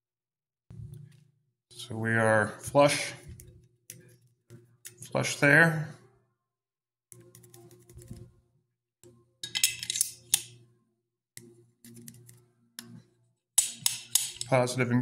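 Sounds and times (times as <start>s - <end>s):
rifle bolt clicking and scraping: 9.4s - 10.6s, 13.6s - 14.5s.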